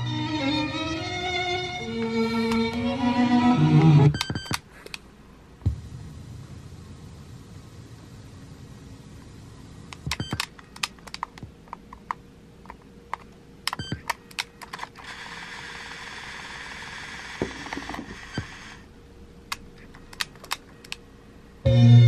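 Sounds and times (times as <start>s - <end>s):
cassette mechanism whirring: 1.1s - 5.0s, 9.9s - 21.1s
cassette player buttons clicking: 10.0s - 15.0s, 19.5s - 21.0s.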